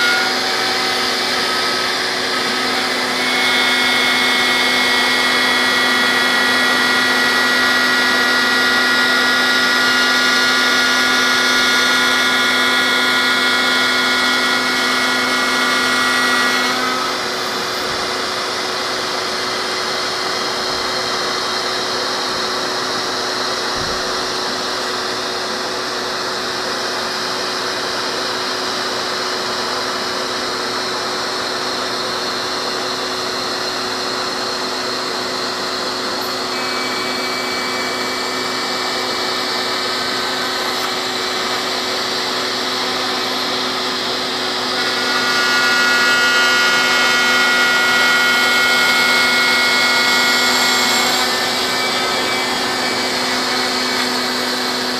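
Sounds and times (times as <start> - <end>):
router spindle hum: 0.0 - 54.9
high whining milling tones: 29.1 - 54.9.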